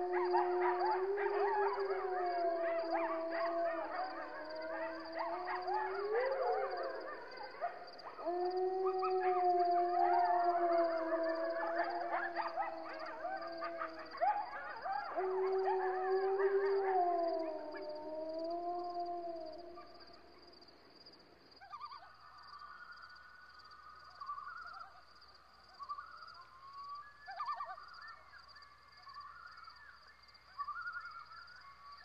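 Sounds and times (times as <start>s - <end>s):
canine howling: 0.0s - 20.1s.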